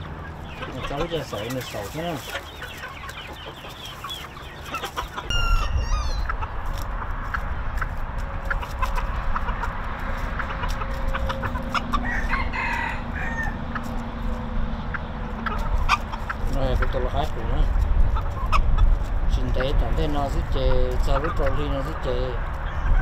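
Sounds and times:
chickens clucking: 0:00.0 - 0:23.0
rooster crowing: 0:05.3 - 0:06.3, 0:12.0 - 0:13.7.

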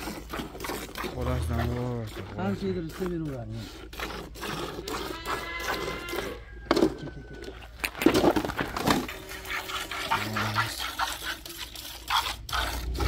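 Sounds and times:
farm animal cries: 0:04.4 - 0:08.0
low drawn-out animal call: 0:04.4 - 0:08.1.

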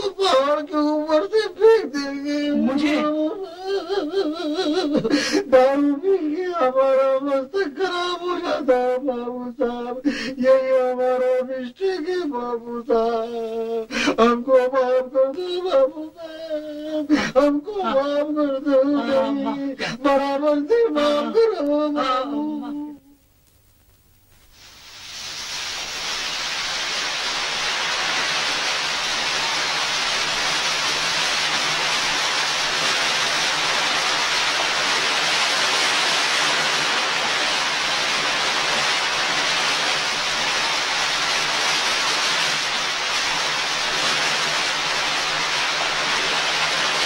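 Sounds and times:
waterfall rushing: 0:24.9 - 0:47.0.

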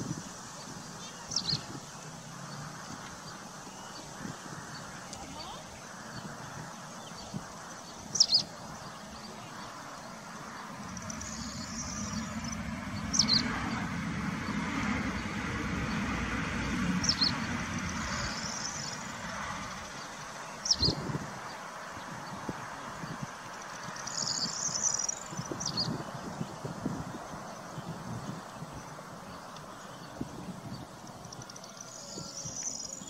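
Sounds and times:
low rumble of distant vehicle: 0:00.0 - 0:33.0
faint bird twittering: 0:00.1 - 0:16.1, 0:17.0 - 0:26.5.

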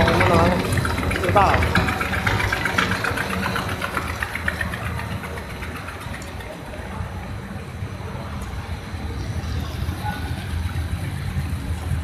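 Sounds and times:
rapid ticking clatter: 0:00.0 - 0:07.9
machinery motor hum: 0:00.0 - 0:12.0.

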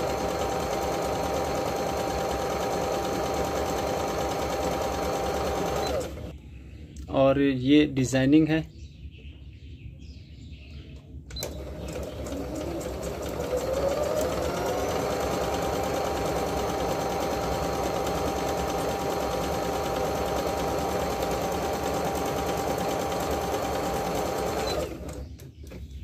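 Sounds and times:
sewing machine running: 0:00.0 - 0:06.3, 0:11.4 - 0:25.2.

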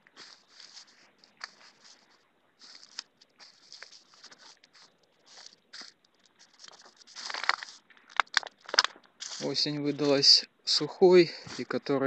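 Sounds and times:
footsteps crunching through dry leaves: 0:00.0 - 0:10.2
twigs cracking: 0:00.0 - 0:10.2.

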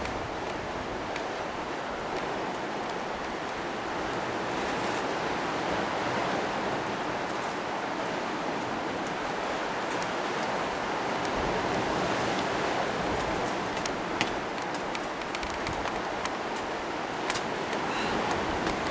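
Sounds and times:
surf washing on rocky shore: 0:00.0 - 0:18.9
faint ticks: 0:13.2 - 0:18.9.

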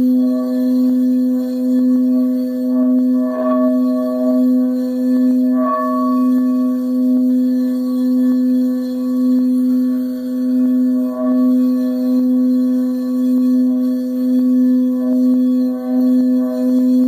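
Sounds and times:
singing bowl tone: 0:00.0 - 0:17.0.

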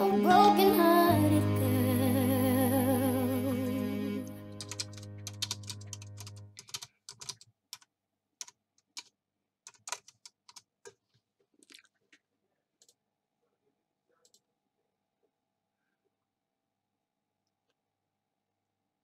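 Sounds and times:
held musical chord: 0:00.0 - 0:06.5.

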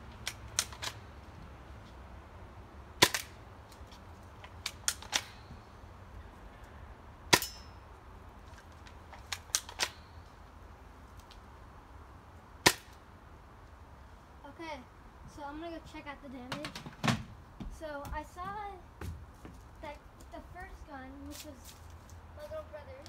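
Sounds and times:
airsoft rifle sharp cracks: 0:03.0 - 0:03.4, 0:04.6 - 0:05.5, 0:07.3 - 0:07.7, 0:09.2 - 0:10.1, 0:12.6 - 0:13.0.

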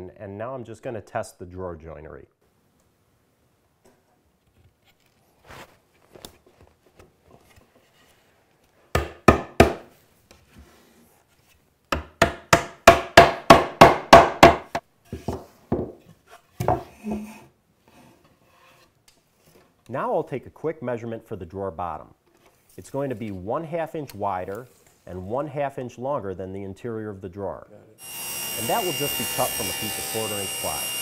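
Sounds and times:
mallet knocking wood: 0:09.0 - 0:09.8, 0:11.9 - 0:14.8.

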